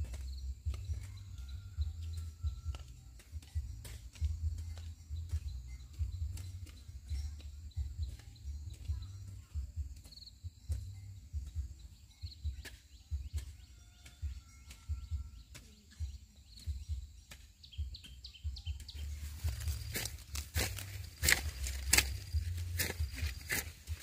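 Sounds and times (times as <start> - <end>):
faint bird chirps: 0.0 - 20.2
footstep-like rustling: 18.8 - 24.0.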